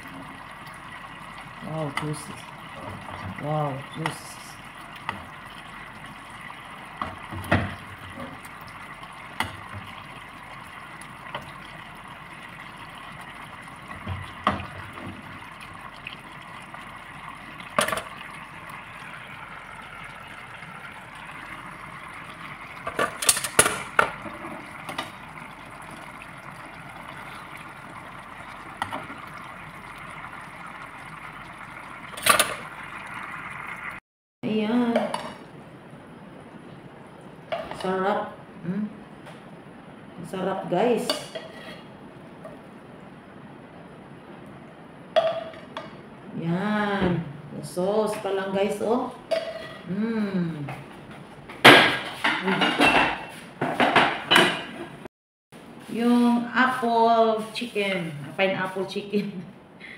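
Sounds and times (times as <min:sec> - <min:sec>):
sauce bubbling in a frying pan: 0:00.0 - 0:34.0.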